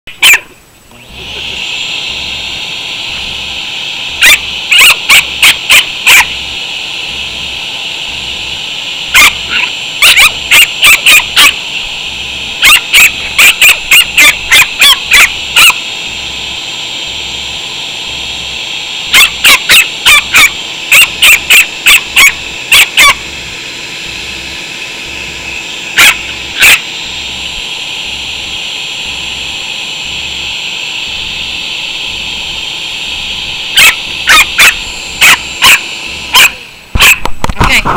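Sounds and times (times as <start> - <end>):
small dog yapping: 0.1 - 0.5, 4.2 - 6.3, 9.2 - 11.6, 12.6 - 15.8, 19.1 - 23.2, 26.0 - 26.9, 33.8 - 37.3
shop vac whine: 0.1 - 37.9.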